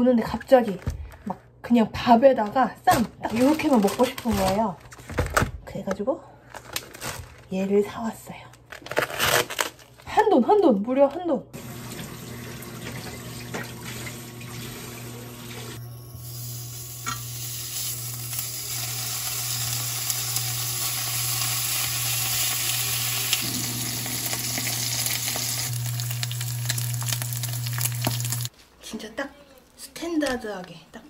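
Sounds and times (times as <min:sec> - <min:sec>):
meat sizzling in a pan: 0:16.1 - 0:28.5.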